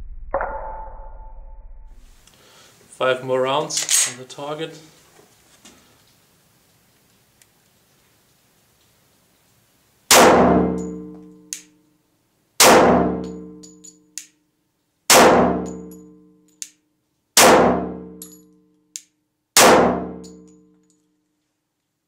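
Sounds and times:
pistol shots echoing: 10.1 - 11.0, 12.6 - 13.4, 15.1 - 15.8, 17.4 - 18.0, 19.6 - 20.2.

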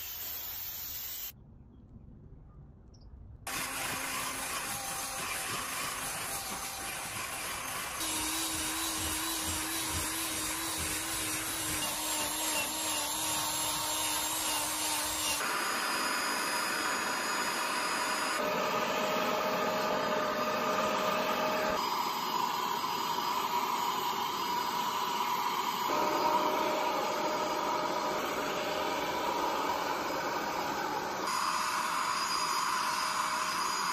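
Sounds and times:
cleaning nozzle hissing on fabric: 0.0 - 1.3, 3.5 - 15.6
cordless drill scrub brush scrubbing: 3.5 - 15.4.

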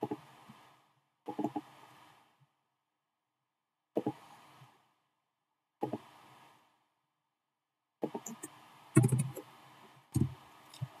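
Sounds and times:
keyboard and mouse clicks: 8.0 - 9.5, 10.2 - 11.0.

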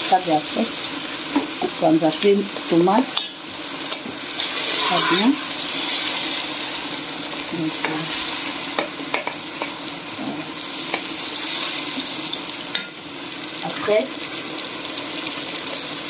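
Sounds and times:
sauce sizzling in a pan: 0.0 - 16.0
metal spoon scraping a pan: 3.2 - 6.8.

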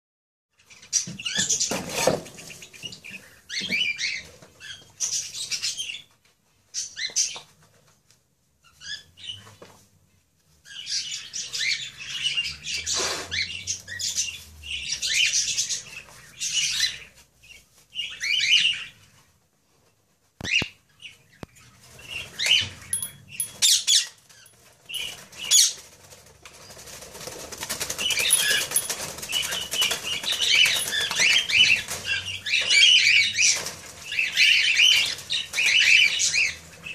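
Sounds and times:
parakeets flapping wings: 25.0 - 32.2.

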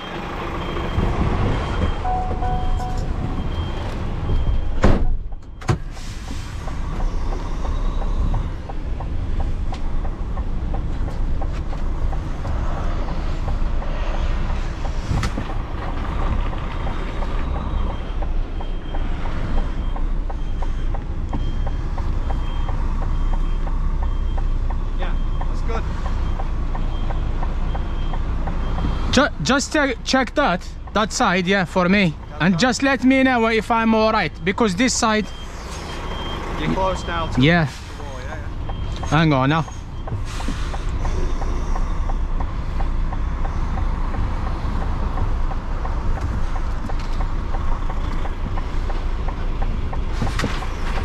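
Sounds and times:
diesel engine at low revs: 0.0 - 4.6
reversing beeper beeps: 0.0 - 5.8, 34.7 - 40.4
loud thump: 4.8 - 5.9.

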